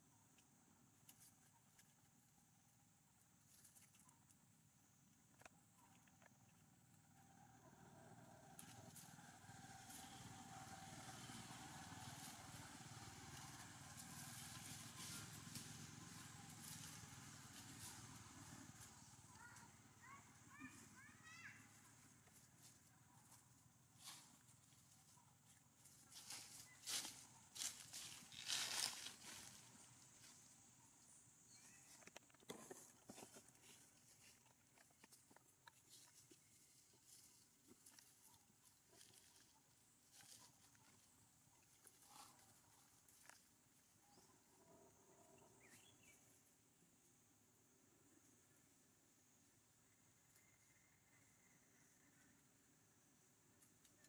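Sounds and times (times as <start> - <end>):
distant vehicle engine running: 7.5 - 22.7.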